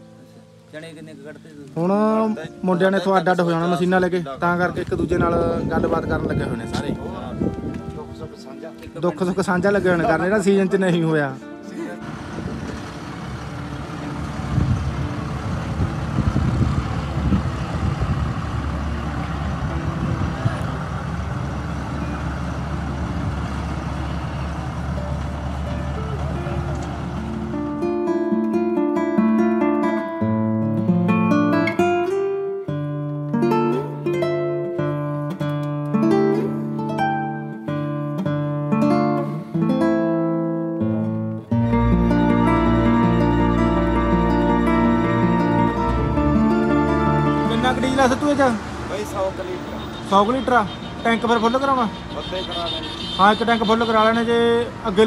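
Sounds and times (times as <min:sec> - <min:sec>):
acoustic guitar music: 0:00.0 - 0:55.0
diesel engine rumbling: 0:03.3 - 0:28.7, 0:41.4 - 0:55.0.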